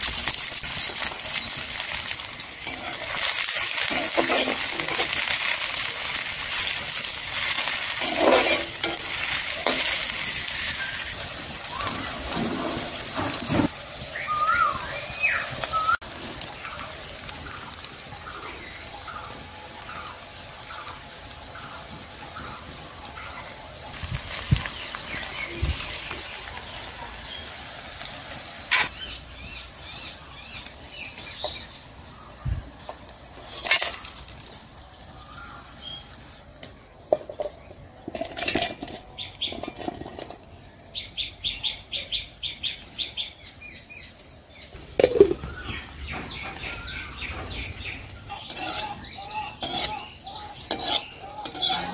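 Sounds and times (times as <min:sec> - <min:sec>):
onions sizzling in oil: 0:00.0 - 0:51.9
birds calling: 0:01.1 - 0:51.9
clinks and knocks of pots: 0:37.1 - 0:40.4, 0:44.9 - 0:46.7.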